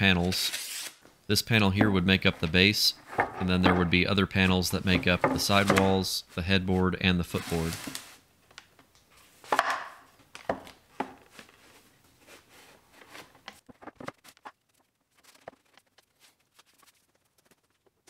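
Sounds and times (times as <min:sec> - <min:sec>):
wooden boards knocking together: 0:03.0 - 0:04.0, 0:04.9 - 0:06.0, 0:09.5 - 0:11.2.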